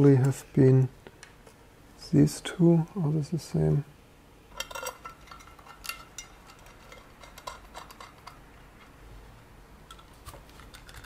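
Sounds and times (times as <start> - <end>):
small screws clinking: 4.5 - 8.9.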